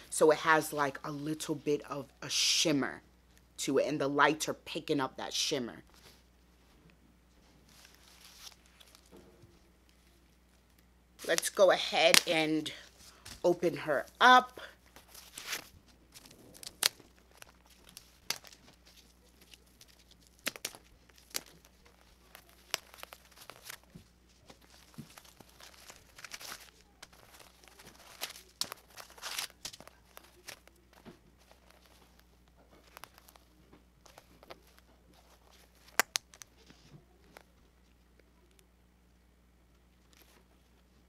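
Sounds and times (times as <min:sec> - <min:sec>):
tissue paper crinkling: 0:07.4 - 0:09.2, 0:14.7 - 0:36.0.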